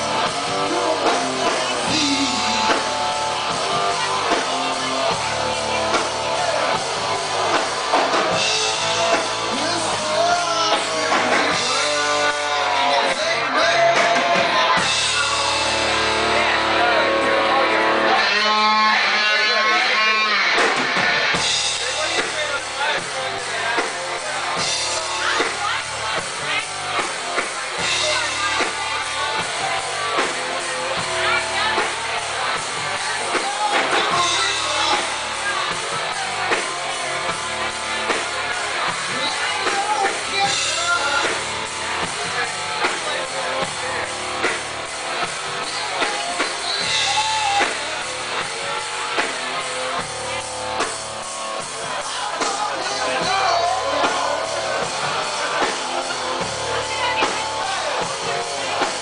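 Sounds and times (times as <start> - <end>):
drum kit: 0.0 - 59.0
electric guitar: 0.0 - 59.0
person singing: 0.4 - 5.0, 8.3 - 16.8.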